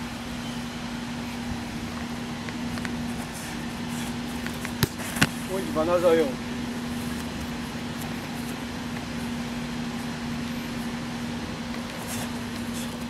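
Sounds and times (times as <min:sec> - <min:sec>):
steady hiss with low tone: 0:00.0 - 0:13.0.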